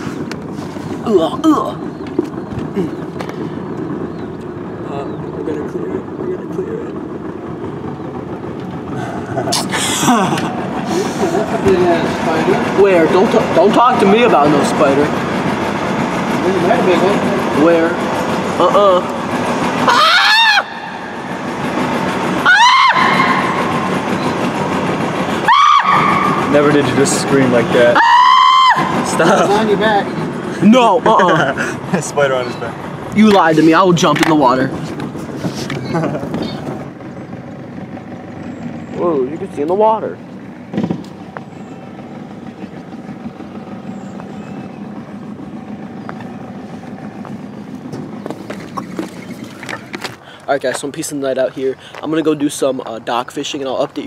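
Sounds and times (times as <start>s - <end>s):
boat motor droning: 0.0s - 54.0s
boy screaming in fright: 19.8s - 21.0s, 22.4s - 23.6s, 25.4s - 26.3s, 28.0s - 29.1s.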